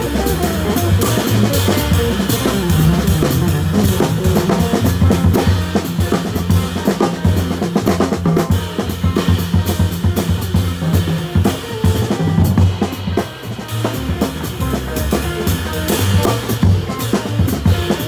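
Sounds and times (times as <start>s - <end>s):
jazz combo playing: 0.0s - 18.0s
upright double bass notes: 0.0s - 18.0s
cymbal and snare strokes: 8.4s - 18.0s.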